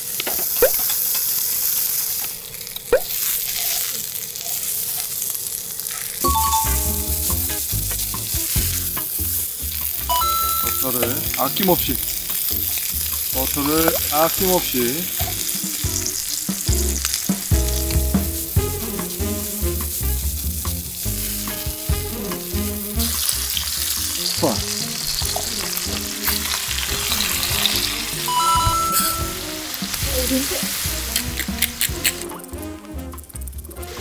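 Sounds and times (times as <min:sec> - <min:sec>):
meat sizzling on a griddle: 0:00.0 - 0:34.0
tongs and scissors clicking: 0:31.1 - 0:32.4.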